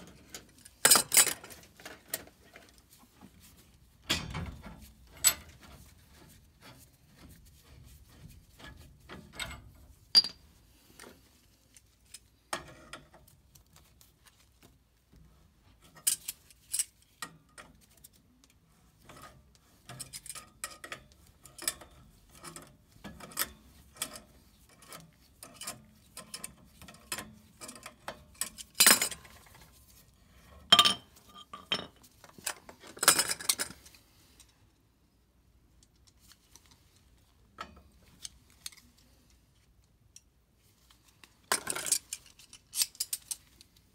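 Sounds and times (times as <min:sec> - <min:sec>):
metal tools clinking on pipe: 0:09.4 - 0:10.4.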